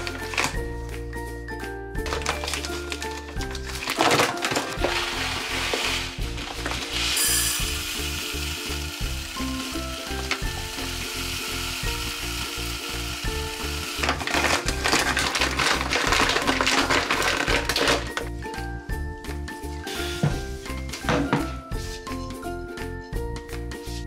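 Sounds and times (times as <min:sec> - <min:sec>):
paper bag rustling: 0:02.0 - 0:07.4, 0:14.0 - 0:18.2
background music with beat: 0:18.1 - 0:24.0.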